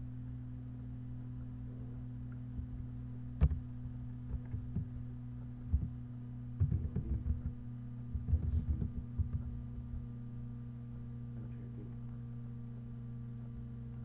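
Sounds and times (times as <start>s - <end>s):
low electrical hum: 0.0s - 14.0s
computer keyboard clicks and taps: 6.6s - 7.6s, 8.2s - 9.5s.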